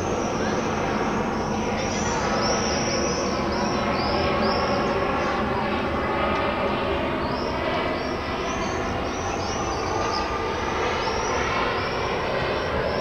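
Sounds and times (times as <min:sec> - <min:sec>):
jet engines droning: 0:00.0 - 0:13.0.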